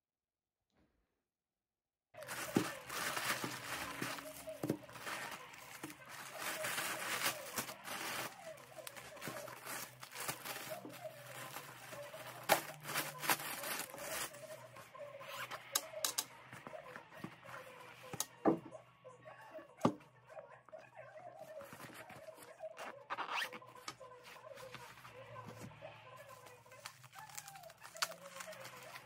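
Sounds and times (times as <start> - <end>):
plastic packaging rustling: 2.2 - 17.6, 24.2 - 29.0.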